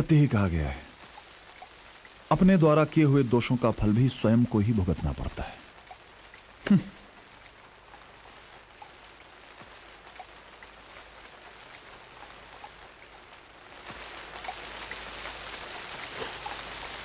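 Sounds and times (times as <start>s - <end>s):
lake water hiss: 13.8s - 17.0s.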